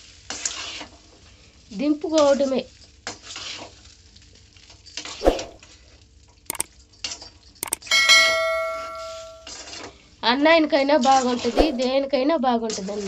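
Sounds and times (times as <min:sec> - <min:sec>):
bright bell chime: 0:07.6 - 0:09.5
clicks: 0:07.6 - 0:09.5.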